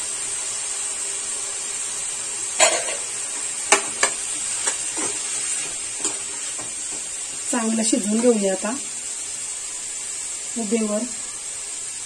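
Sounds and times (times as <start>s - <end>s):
vegetables sizzling in oil: 0.0s - 12.0s
steel spoon scraping a pan: 2.6s - 7.0s.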